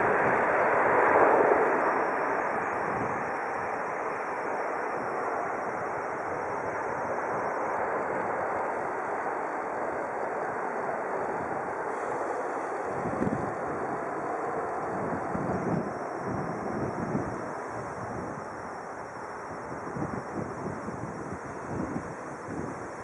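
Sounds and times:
jet engines roaring: 0.0s - 23.0s
wind buffeting microphone: 2.5s - 9.2s, 11.2s - 23.0s.

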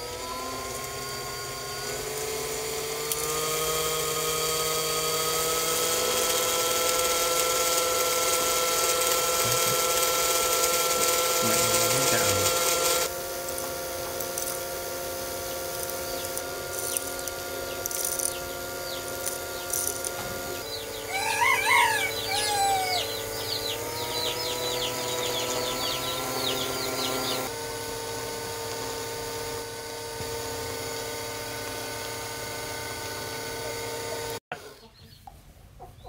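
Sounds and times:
small electric motor whining: 0.0s - 34.7s
chickens clucking: 19.6s - 27.4s, 34.5s - 36.0s
rooster crowing: 20.7s - 23.8s.

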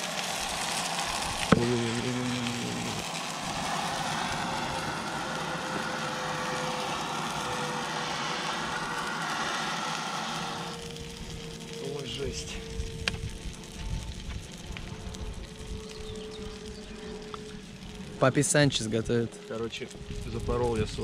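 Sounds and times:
gas stove hissing: 0.0s - 21.0s
short low hum: 1.1s - 11.6s.

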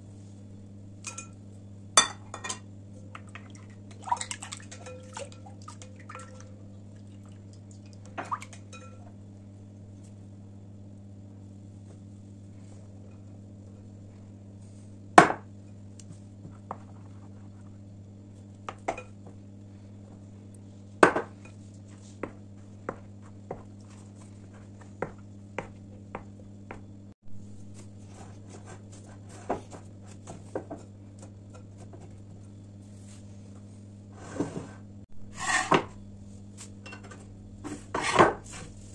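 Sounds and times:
steady low hum: 0.0s - 38.9s
spatula stirring wet dough: 21.4s - 26.9s, 27.6s - 32.2s.

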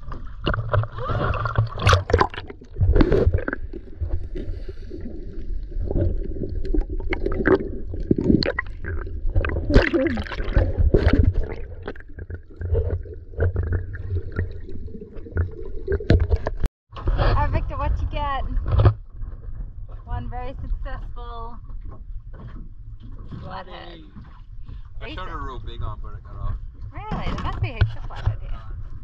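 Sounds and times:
splashes and knocks: 0.0s - 17.4s
water sloshing and gurgling: 0.0s - 29.0s
low muffled rumble: 16.3s - 29.0s.

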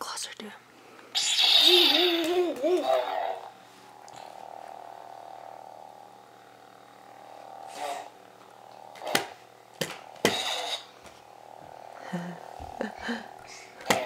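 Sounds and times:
toy lightsaber humming: 1.0s - 14.0s
lightsaber loud bursts: 1.1s - 4.0s, 4.8s - 11.0s.

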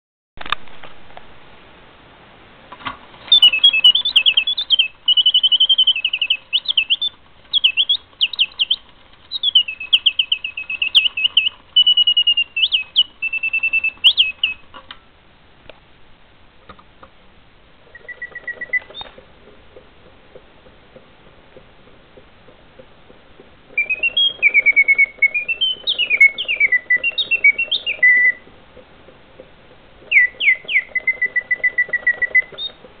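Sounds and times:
mechanical bird song whistling: 3.2s - 14.7s, 17.8s - 19.8s, 23.7s - 28.5s, 30.0s - 32.9s.

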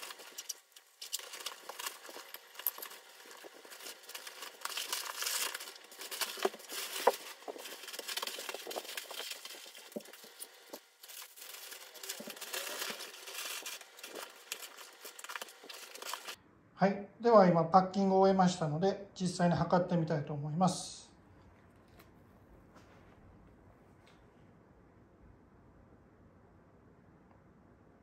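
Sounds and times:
sped-up crinkling and rustling: 0.0s - 16.4s.

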